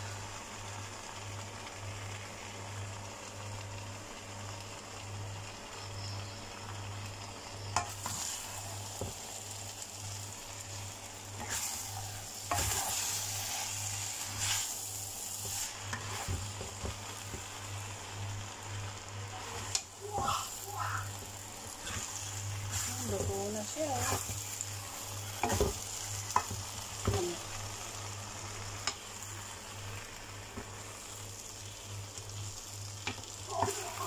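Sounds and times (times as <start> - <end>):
noodles sizzling in a wok: 0.0 - 34.0
spatula stirring and tossing: 7.8 - 34.0.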